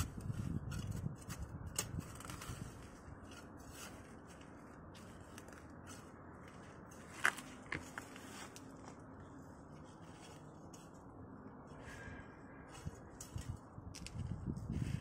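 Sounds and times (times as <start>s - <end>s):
weeds rustling and tearing: 0.1s - 11.1s.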